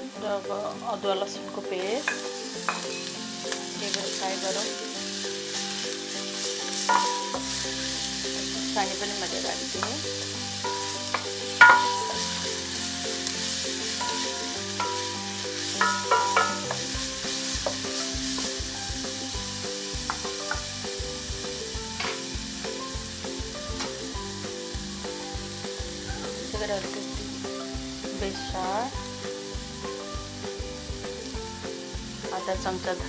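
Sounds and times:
food sizzling in hot oil: 0.0s - 33.0s
wooden spatula knocking on pan: 2.1s - 2.9s, 6.9s - 7.6s, 10.7s - 12.4s, 14.0s - 17.0s, 17.6s - 18.6s, 20.0s - 20.7s.

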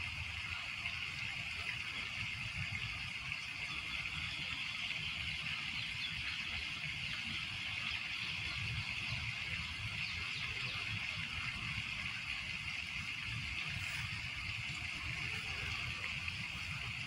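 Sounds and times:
lake water lapping: 10.3s - 17.0s.

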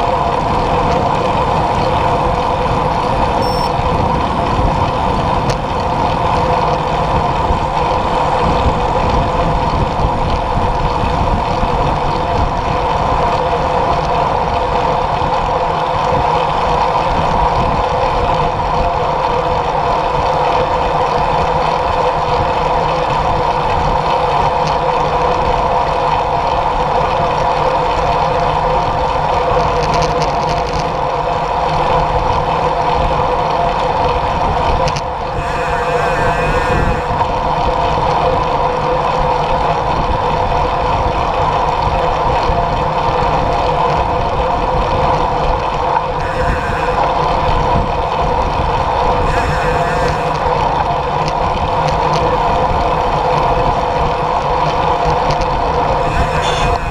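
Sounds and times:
wind and road noise: 0.0s - 56.9s
steady hum: 1.2s - 5.2s, 35.0s - 38.0s, 46.0s - 53.8s, 55.7s - 56.9s.

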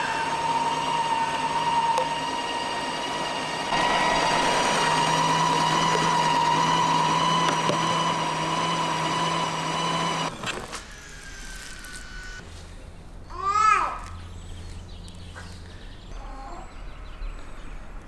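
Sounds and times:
meat grinder motor whine: 0.0s - 12.4s.

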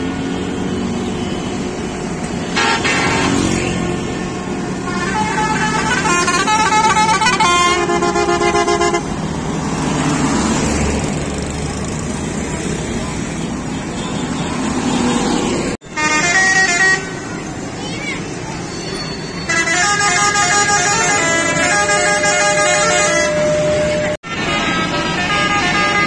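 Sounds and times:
bus engines: 0.0s - 26.0s
road traffic: 0.0s - 26.0s
multi-tone bus horn: 2.4s - 9.2s, 15.8s - 17.6s, 18.7s - 26.0s.

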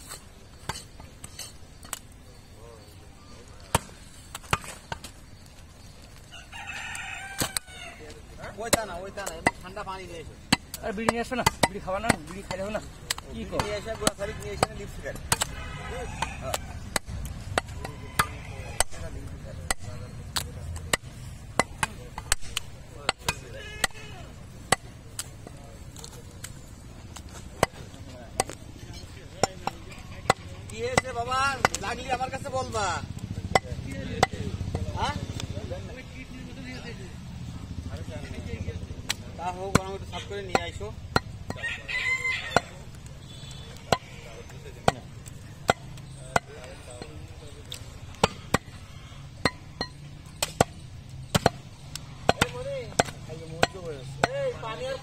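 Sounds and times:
cleaver chopping meat on wood: 8.5s - 25.6s, 26.4s - 35.5s, 39.0s - 41.7s, 42.5s - 54.9s.

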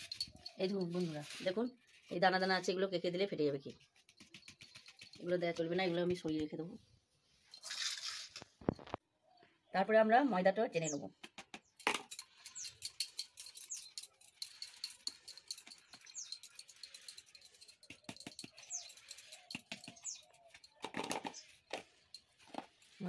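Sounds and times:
sieve tapping and rasping: 3.8s - 6.7s, 11.2s - 23.0s
bird chirping: 10.7s - 22.2s.

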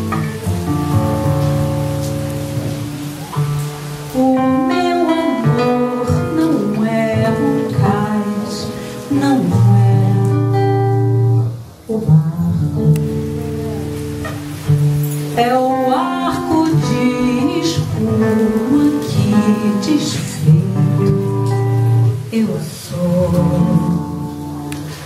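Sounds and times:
plucked acoustic guitar: 0.0s - 25.0s
woman singing into a microphone: 4.1s - 14.0s, 15.1s - 25.0s.

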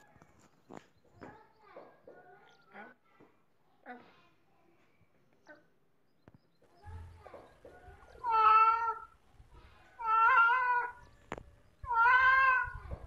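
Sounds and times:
cat meowing: 8.2s - 9.2s, 10.0s - 11.0s, 11.8s - 13.0s.

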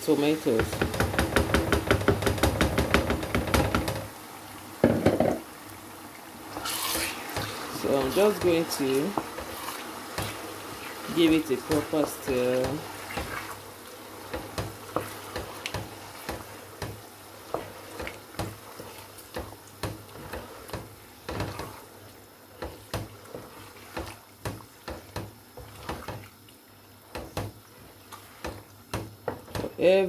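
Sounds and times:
faint oil sizzle: 4.0s - 30.0s
wooden spatula scraping pot: 6.5s - 26.3s.

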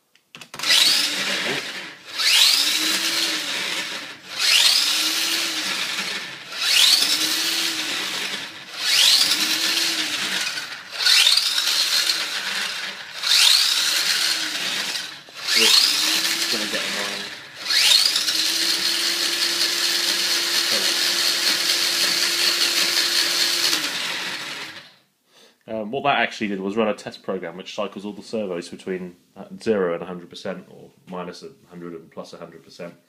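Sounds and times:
rc car electric motor whining: 0.5s - 25.0s.

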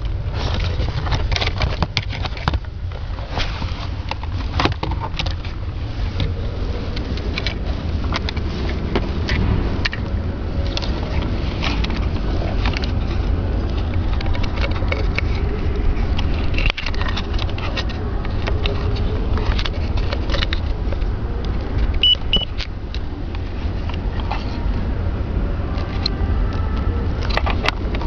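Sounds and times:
wiring and connectors rattling: 0.0s - 24.9s, 25.6s - 28.0s
steady low rumble: 0.0s - 28.0s
short high beeps: 22.0s - 22.5s.

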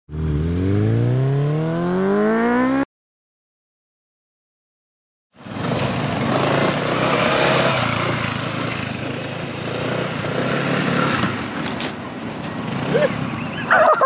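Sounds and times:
scooter engine running: 5.4s - 14.0s.

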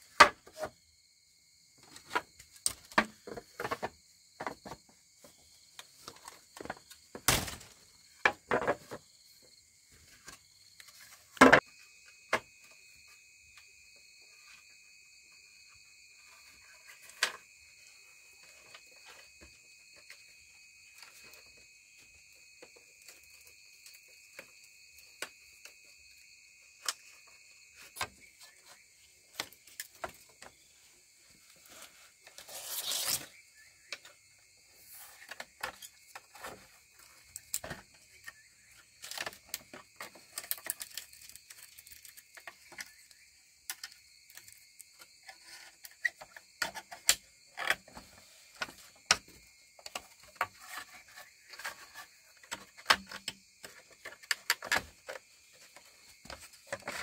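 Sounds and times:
insect chorus: 0.0s - 57.0s.

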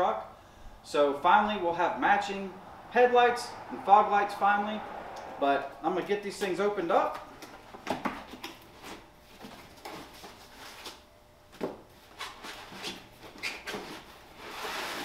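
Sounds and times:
packaging sliding and rustling: 13.7s - 15.0s.

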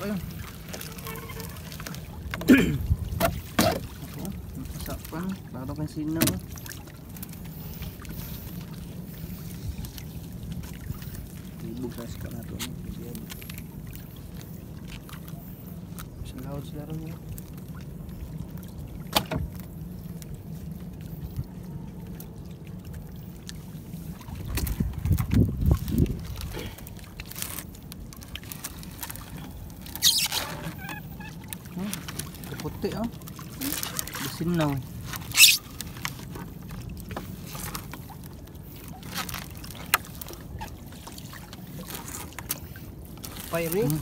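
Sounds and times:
fishing net hauled by hand: 0.0s - 17.6s, 23.6s - 44.0s
water sloshing against boat hull: 0.0s - 44.0s.

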